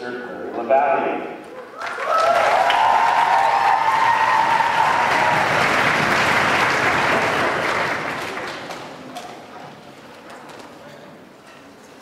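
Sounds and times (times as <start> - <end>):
drawn-out cheer: 1.6 - 8.0
audience applauding: 1.7 - 9.1.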